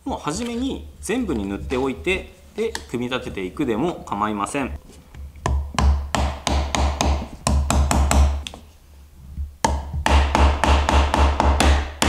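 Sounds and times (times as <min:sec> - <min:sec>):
hammer tapping wood: 0:05.4 - 0:08.6, 0:09.6 - 0:12.0.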